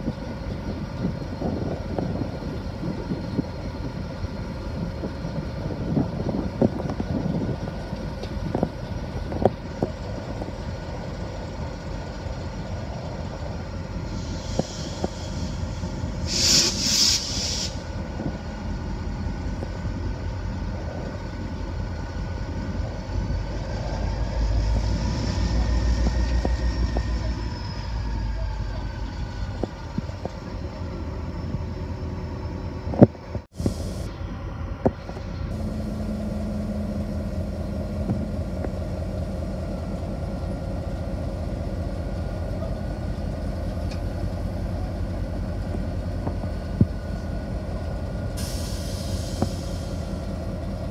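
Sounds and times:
diesel locomotive idling: 0.0 - 50.9
short hisses: 14.1 - 17.9, 48.4 - 50.2.

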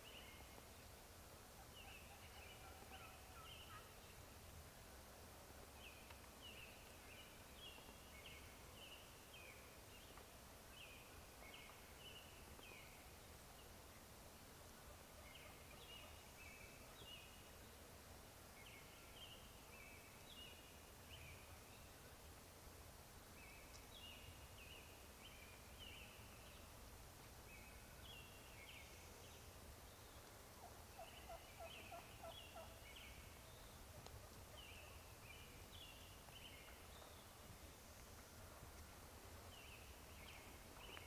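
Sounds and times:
wild turkeys calling: 1.6 - 4.0, 30.6 - 32.9.

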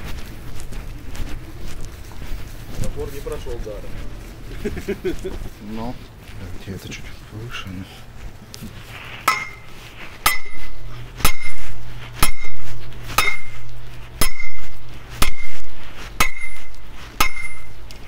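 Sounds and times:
sledgehammer striking metal post: 9.2 - 10.6, 11.2 - 11.6, 12.2 - 15.6, 16.2 - 17.8.

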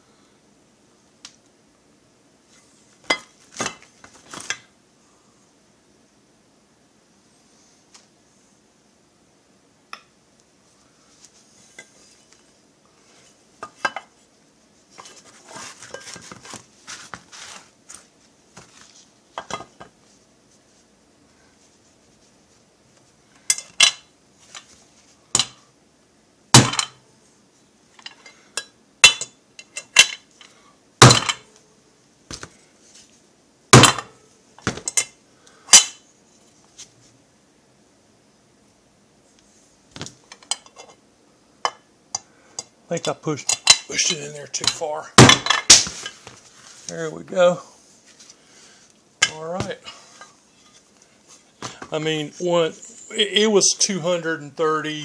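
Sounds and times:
handling and rustling: 2.5 - 4.7, 11.0 - 25.6, 32.2 - 33.3, 43.4 - 53.2.

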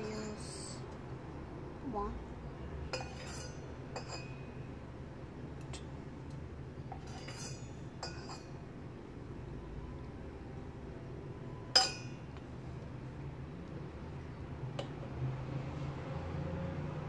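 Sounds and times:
low steady hum: 0.0 - 15.8
utensils clinking against pot: 2.9 - 4.5, 6.9 - 8.6, 11.7 - 12.3.

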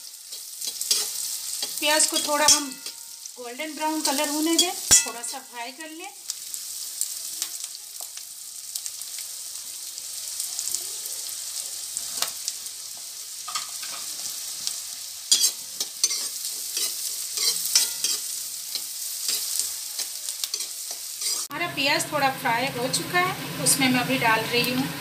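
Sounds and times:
onions sizzling in oil: 0.0 - 25.0
metal spatula scraping pan: 0.2 - 3.2, 15.3 - 21.5.

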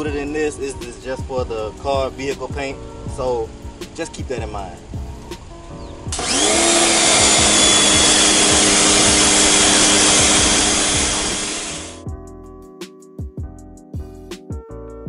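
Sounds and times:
background music with a beat: 0.0 - 6.4, 7.0 - 15.0
electric pressure washer motor whine: 6.1 - 12.0.

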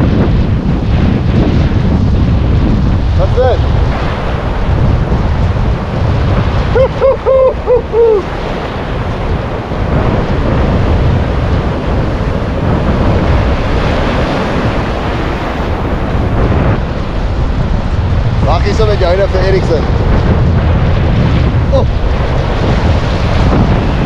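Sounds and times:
ocean surf washing on shore: 0.0 - 24.0
wind buffeting microphone: 0.0 - 24.0
person calling out: 6.8 - 8.3.

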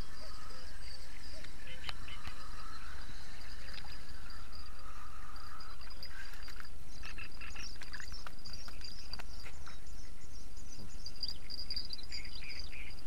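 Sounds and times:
frogs calling: 0.0 - 13.0
insects chirring: 0.0 - 13.0.

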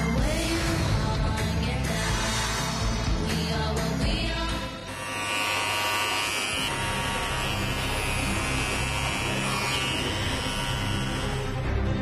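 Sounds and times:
electric hair clippers buzzing: 4.5 - 12.0.

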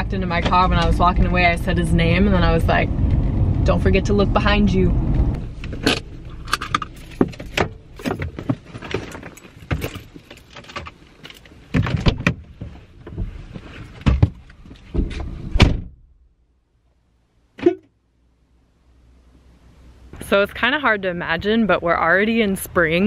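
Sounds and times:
rustling and knocks: 5.5 - 15.6
car door shutting: 14.9 - 16.0.

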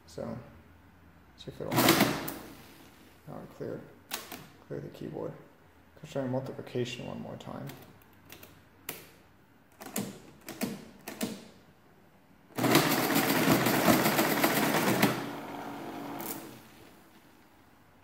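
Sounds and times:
calculator mechanism running: 12.6 - 16.7.

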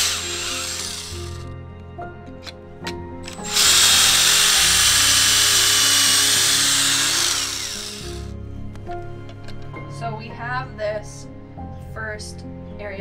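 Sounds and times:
drill boring into wood: 0.0 - 1.5, 3.2 - 8.3
drill clicks: 0.0 - 1.5, 2.4 - 8.3.

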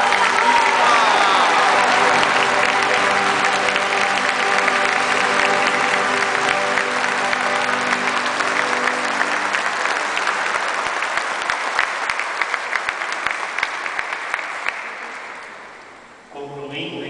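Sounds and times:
congregation applauding: 0.0 - 16.3
held music notes: 1.4 - 11.3.

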